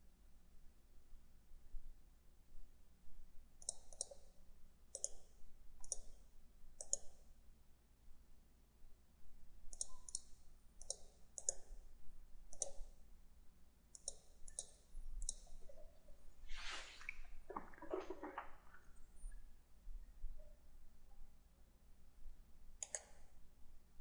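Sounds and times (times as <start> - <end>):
computer mouse buttons clicking: 3.6 - 4.3, 4.9 - 5.2, 6.8 - 7.2, 9.7 - 11.8, 12.5 - 12.9, 14.0 - 15.7, 22.8 - 23.3
brief rustling scraping: 16.4 - 18.6.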